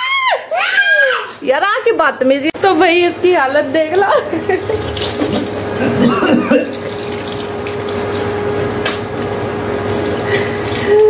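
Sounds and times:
tap water running into basin: 2.7 - 11.0
man rinsing mouth: 4.4 - 11.0.

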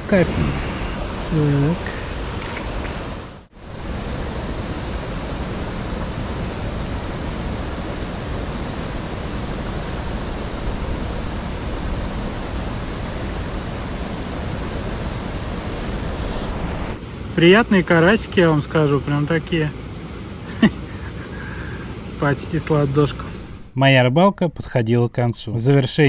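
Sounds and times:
stream water rushing: 0.0 - 18.9.

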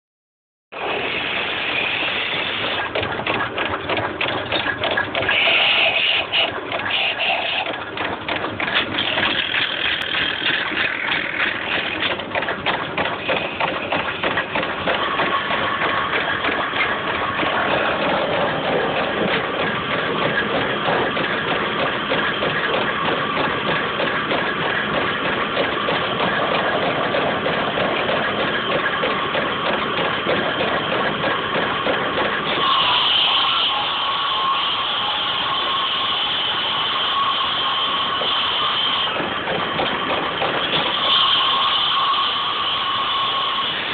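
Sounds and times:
wood lathe running: 2.6 - 43.9.

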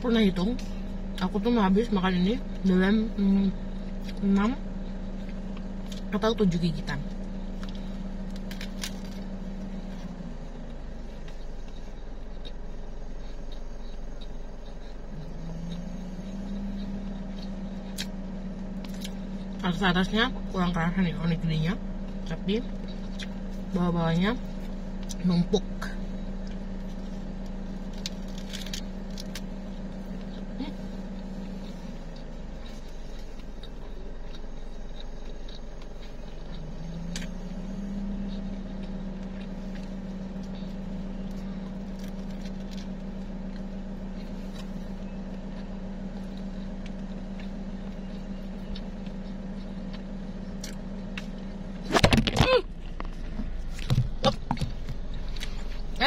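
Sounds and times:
car engine idling: 0.0 - 56.0
chewing clicks: 10.6 - 19.6, 26.4 - 51.5.

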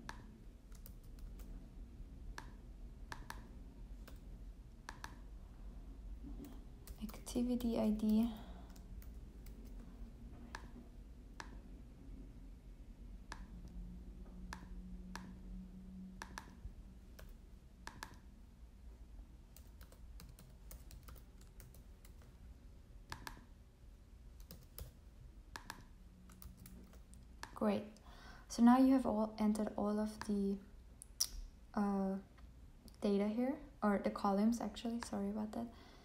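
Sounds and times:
computer keyboard typing: 0.0 - 1.6, 2.3 - 5.2, 6.4 - 9.8, 16.2 - 18.3, 19.5 - 22.4, 23.1 - 23.5, 24.4 - 27.6.

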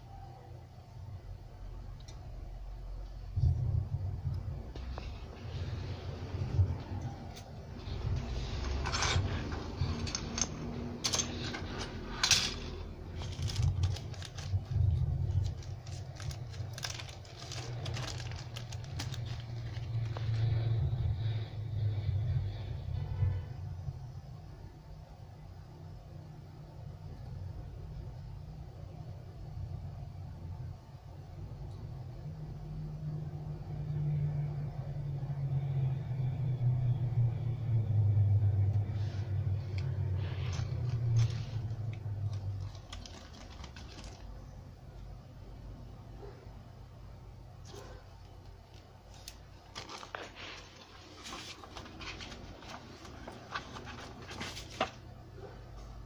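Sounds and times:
low steady hum: 0.0 - 56.0
plastic parts clicking and clattering: 8.2 - 20.2, 40.5 - 44.4.

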